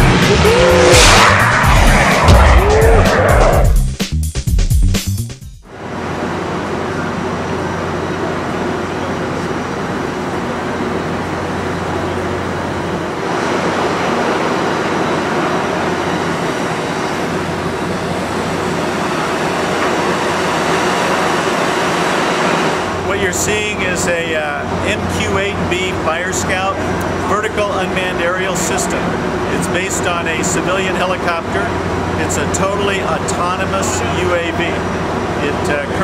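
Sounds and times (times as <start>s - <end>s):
low hum: 0.0s - 3.8s
continuous rumble and hiss: 5.7s - 36.0s.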